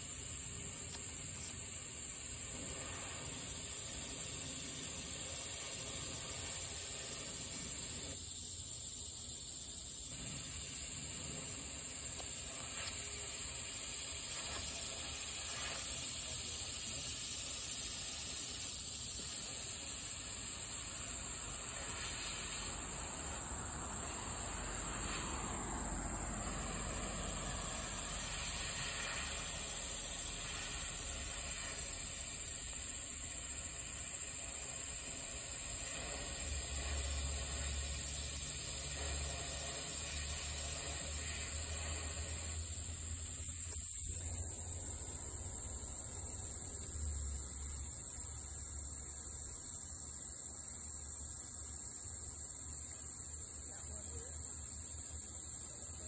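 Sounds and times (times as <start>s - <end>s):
sprayer nozzle hissing: 0.0s - 8.2s, 10.1s - 46.9s.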